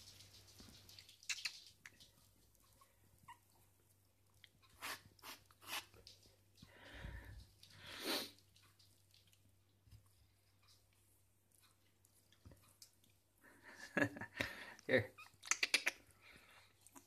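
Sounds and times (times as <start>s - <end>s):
wet smacking sounds: 0.0s - 3.0s, 15.3s - 17.0s
puppy licking and chewing: 0.0s - 13.4s, 14.4s - 17.0s.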